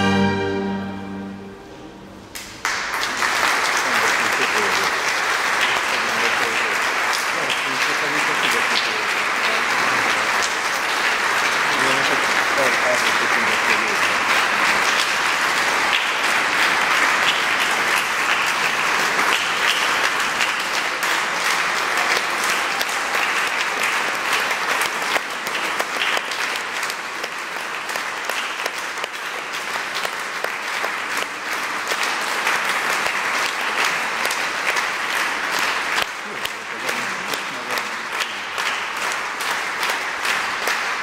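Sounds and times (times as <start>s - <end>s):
audience applauding: 2.3s - 41.0s.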